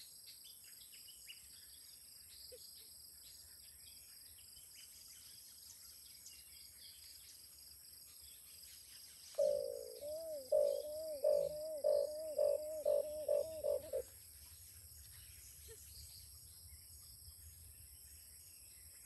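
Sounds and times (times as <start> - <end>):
faint insect drone: 0.0 - 19.0
small bird chirps: 9.3 - 14.0
dove cooing: 9.4 - 14.1.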